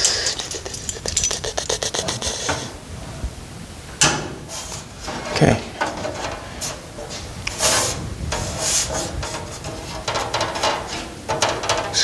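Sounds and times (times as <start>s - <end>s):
metal panel scraping against metal: 4.3s - 12.0s.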